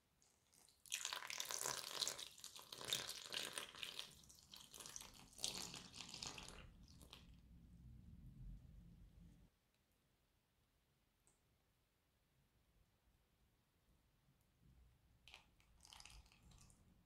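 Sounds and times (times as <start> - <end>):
milk pouring and splashing into bowl: 0.2 - 7.4, 15.2 - 17.0.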